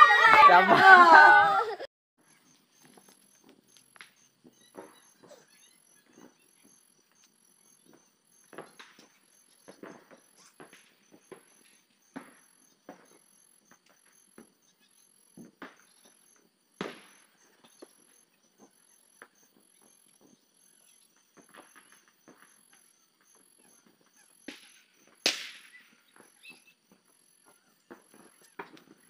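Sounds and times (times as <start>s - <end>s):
crickets chirping: 2.2s - 29.0s
sharp cracks: 24.4s - 26.4s.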